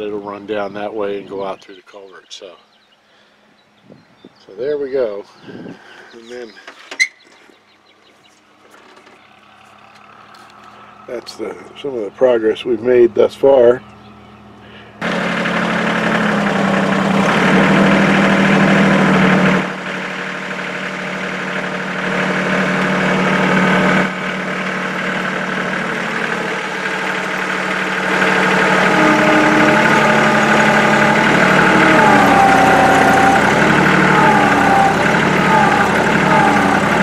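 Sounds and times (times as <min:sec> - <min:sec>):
tractor diesel engine running: 0:05.0 - 0:37.0
thin squeaks: 0:06.7 - 0:07.4.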